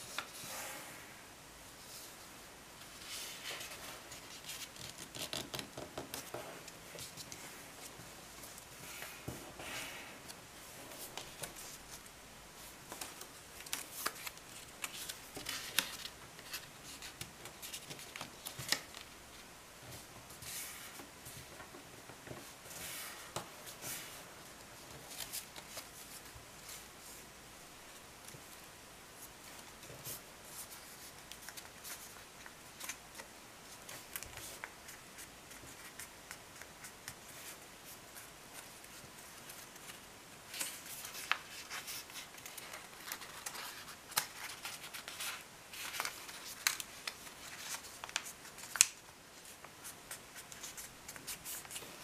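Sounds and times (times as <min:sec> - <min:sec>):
paper rustling and creasing: 0:02.8 - 0:19.1, 0:29.4 - 0:52.0.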